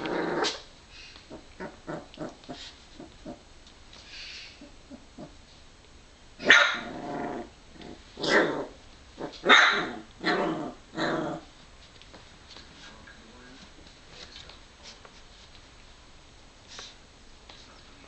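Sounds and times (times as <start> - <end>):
puppy barking: 6.4 - 6.9, 9.4 - 10.0.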